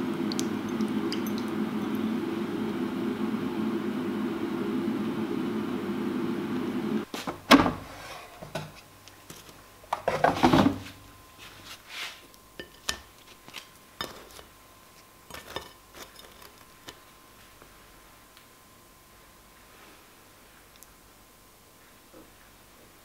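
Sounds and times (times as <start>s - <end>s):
steady hum: 0.0s - 22.0s
air fryer drawer clattering: 7.5s - 8.8s
dishes tapping: 12.6s - 13.1s.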